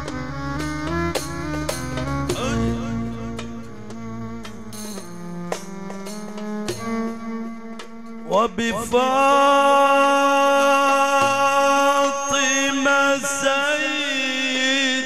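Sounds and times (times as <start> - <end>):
drum or tambourine strikes: 4.5 - 7.0.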